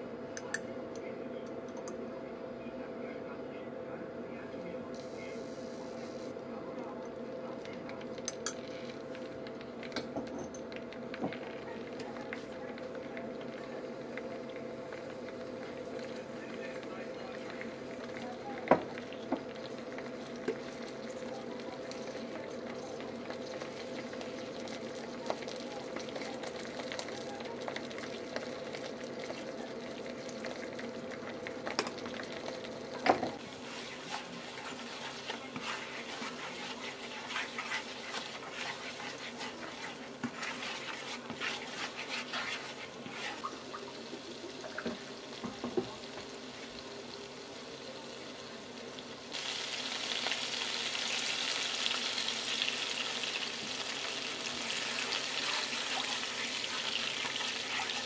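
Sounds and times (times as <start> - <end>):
chilli paste sizzling in oil: 10.8 - 58.0
spatula scraping and tapping pan: 33.4 - 43.5.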